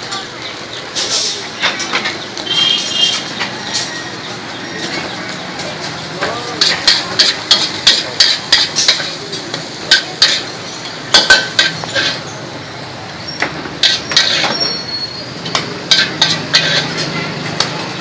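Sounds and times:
metal spatula scraping a wok: 1.0s - 4.0s, 6.6s - 12.4s, 13.2s - 18.0s.

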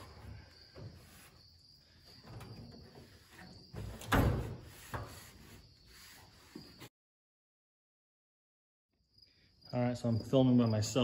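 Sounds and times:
towel rubbing on steel drawers: 4.4s - 6.9s.

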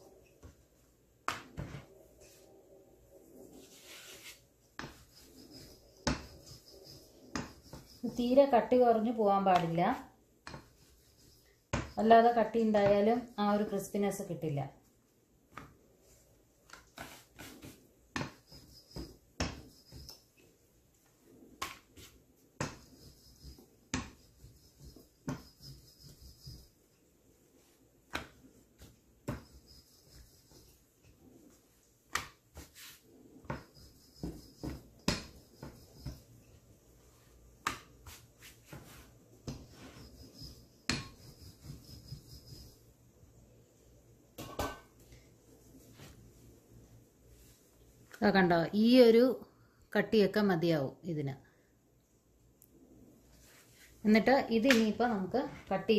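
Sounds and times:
faint rubbing: 1.8s - 8.2s.

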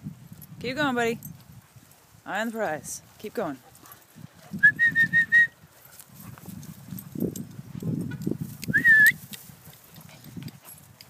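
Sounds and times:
grass rustling: 0.0s - 11.0s
whistle calls: 4.6s - 5.6s, 8.7s - 9.2s
footsteps in grass: 5.6s - 10.9s.

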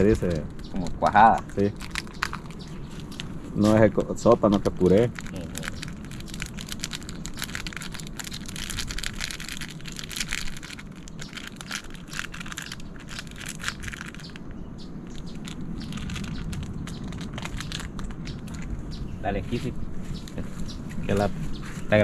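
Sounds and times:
fire crackling and popping: 0.0s - 19.2s
low background noise: 0.0s - 22.0s.

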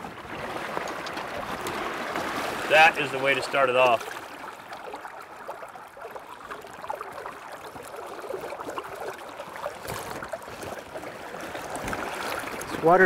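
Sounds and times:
river water gurgling and splashing: 0.0s - 13.0s.

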